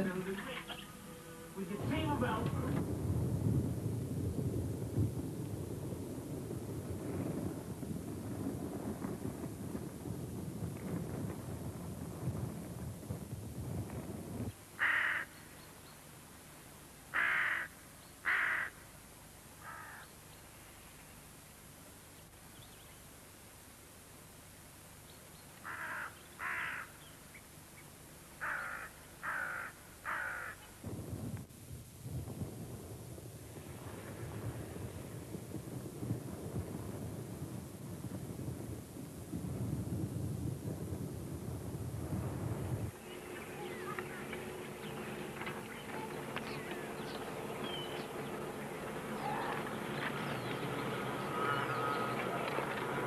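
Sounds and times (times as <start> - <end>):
steady buzzing drone: 0.0 - 4.3, 42.3 - 53.0
low rumbling noise: 0.0 - 14.6, 30.8 - 53.0
crow cawing: 14.8 - 15.4, 17.1 - 18.8, 19.6 - 20.1, 25.6 - 27.0, 28.4 - 30.8, 51.3 - 52.4.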